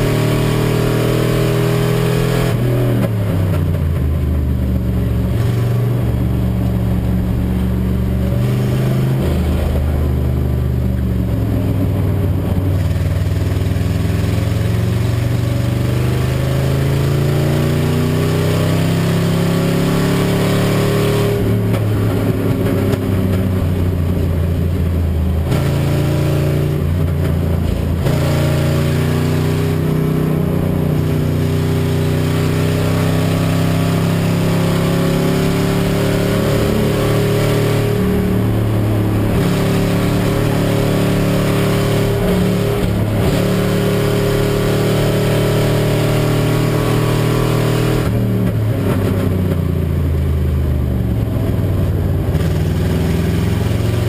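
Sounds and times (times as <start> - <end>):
misfiring race car engine: 16.0 - 49.6.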